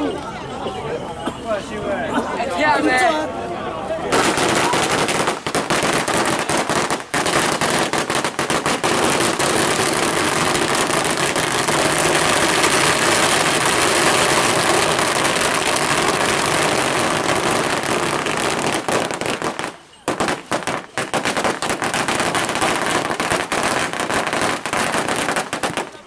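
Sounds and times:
firecrackers crackling: 4.1 - 26.0.

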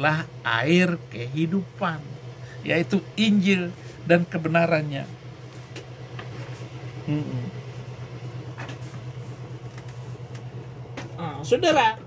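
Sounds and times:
motor humming: 0.0 - 12.0
low vocal sound: 7.0 - 7.6.

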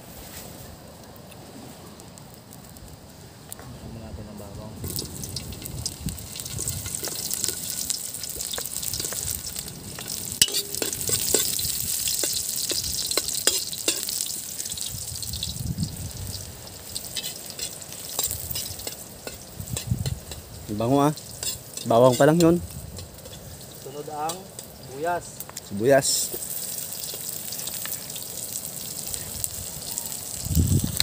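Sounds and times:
garlic sizzling in hot oil: 4.6 - 31.0
metal ladle scraping a wok: 10.4 - 12.4, 17.1 - 20.5, 21.2 - 23.8.

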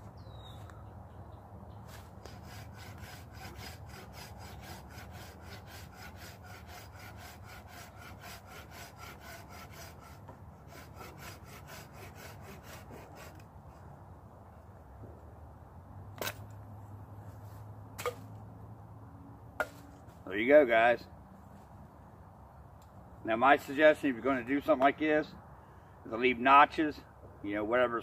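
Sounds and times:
folding saw cutting a branch: 1.9 - 13.5.

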